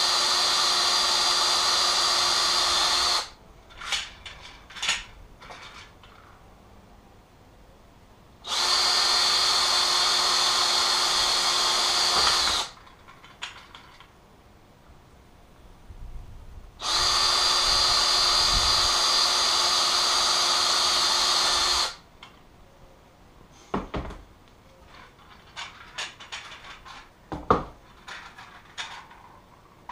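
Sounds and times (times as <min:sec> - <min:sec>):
cordless drill drilling: 0:00.0 - 0:03.4, 0:08.5 - 0:12.8, 0:16.8 - 0:22.0.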